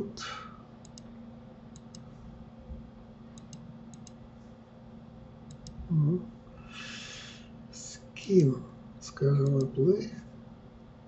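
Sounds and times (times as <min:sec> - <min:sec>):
faint electrical hum: 0:00.0 - 0:11.0
computer mouse clicking: 0:00.8 - 0:01.1, 0:01.7 - 0:02.1, 0:03.4 - 0:04.2, 0:05.5 - 0:05.8, 0:09.4 - 0:09.8.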